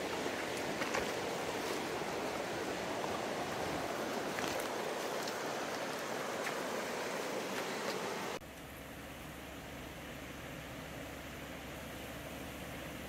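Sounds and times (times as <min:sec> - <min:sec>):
footsteps on dirt path: 0:00.0 - 0:08.2
river rushing over rocks: 0:00.0 - 0:08.4.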